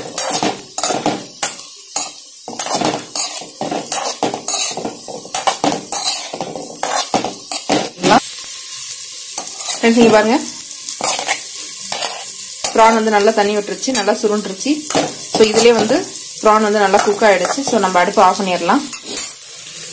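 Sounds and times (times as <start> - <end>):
metal spoon scraping a pan: 0.0 - 8.2, 9.4 - 13.0, 13.8 - 16.1, 16.8 - 19.4
prawns sizzling in a pan: 0.0 - 19.9.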